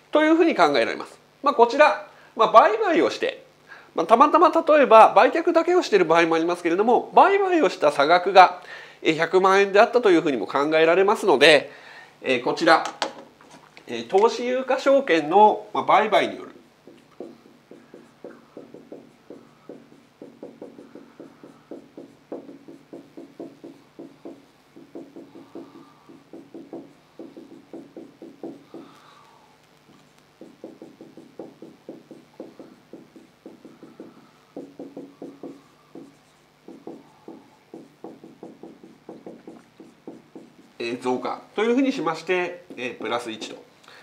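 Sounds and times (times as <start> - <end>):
marker writing on whiteboard: 16.2 - 29.0, 29.9 - 41.3, 42.3 - 43.6.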